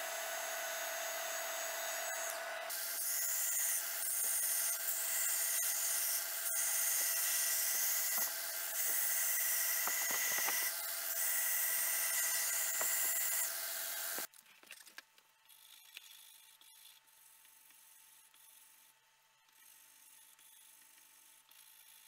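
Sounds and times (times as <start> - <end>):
belt grinder motor hum: 0.0 - 14.3.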